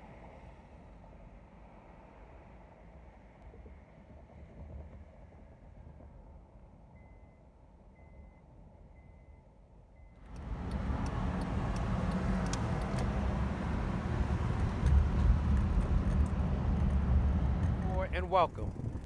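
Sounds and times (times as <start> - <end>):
road noise with low rumble: 0.0 - 19.0
faint short beeps: 7.0 - 10.3.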